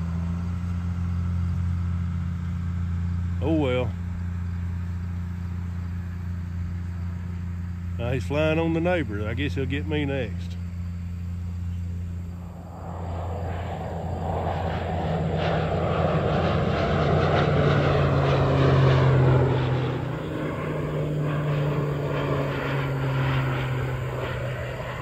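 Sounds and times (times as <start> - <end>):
propeller plane engine droning: 0.0 - 25.0.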